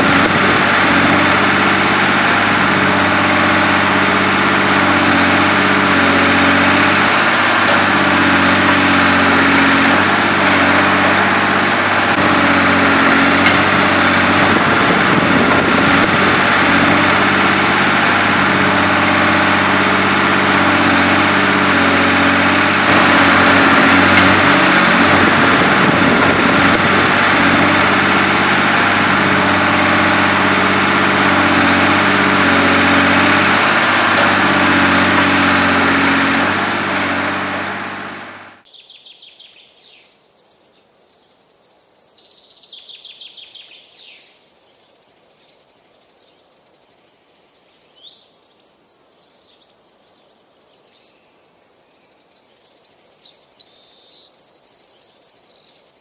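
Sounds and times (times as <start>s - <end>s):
motor humming: 0.0s - 38.7s.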